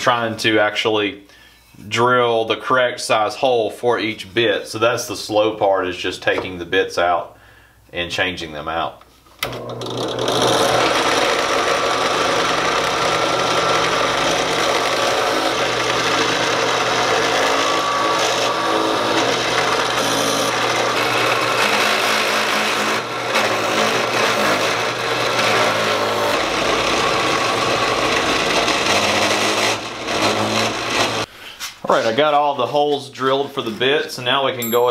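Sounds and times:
drill press boring into wood: 0:09.4 - 0:31.3.

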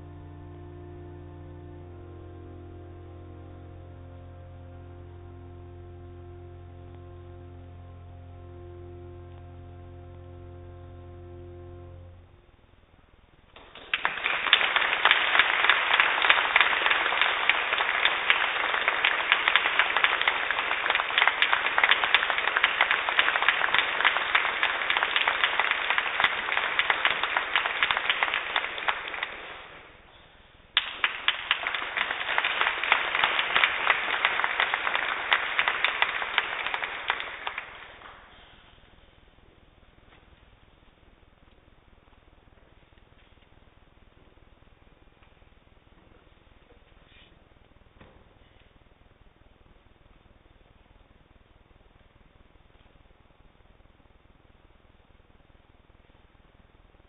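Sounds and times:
audience applauding: 0:13.6 - 0:29.9, 0:30.8 - 0:38.4.

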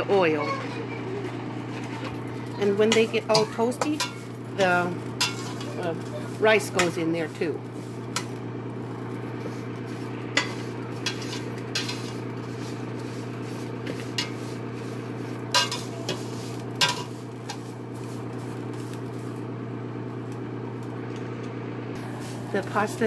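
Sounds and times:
steady low hum: 0:00.0 - 0:23.0
spatula scraping a metal pot: 0:01.7 - 0:07.0, 0:10.4 - 0:17.7.

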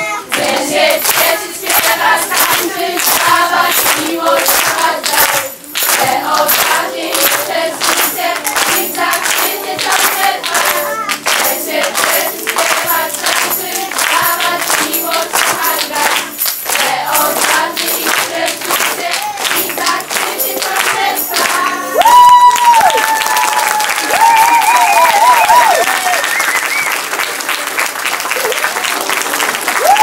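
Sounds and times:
hands clapping in rhythm: 0:00.2 - 0:30.0
girls singing together: 0:00.3 - 0:22.0.

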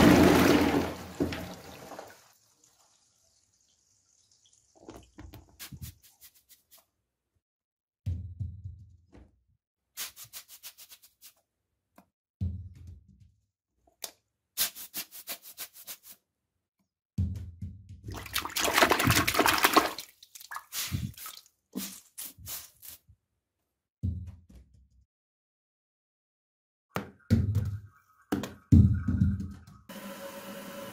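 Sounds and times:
toilet flushing: 0:00.0 - 0:03.4, 0:18.1 - 0:20.1, 0:29.9 - 0:30.9.

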